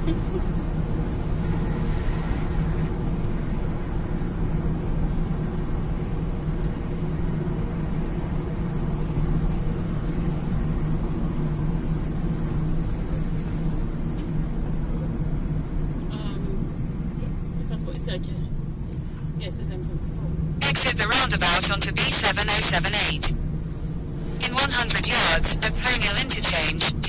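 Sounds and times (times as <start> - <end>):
car engine and road noise: 0.0 - 27.0.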